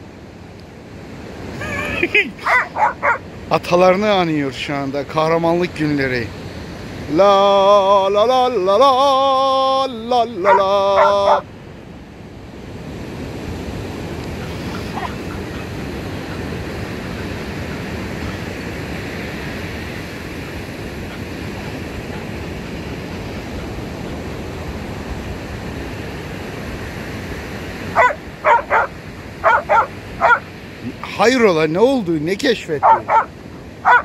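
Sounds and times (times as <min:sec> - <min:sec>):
ocean surf: 0:00.0 - 0:34.0
dog yipping: 0:01.6 - 0:03.2, 0:10.4 - 0:11.4, 0:14.7 - 0:15.7, 0:27.9 - 0:30.5, 0:32.8 - 0:34.0
wind on microphone: 0:12.3 - 0:31.0.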